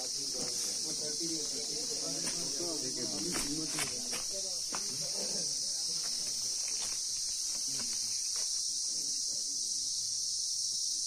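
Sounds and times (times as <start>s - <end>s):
faint voices murmuring: 0.0s - 11.0s
high-pitched hiss: 0.0s - 11.0s
footsteps crunching on debris: 1.4s - 5.2s, 5.9s - 8.6s.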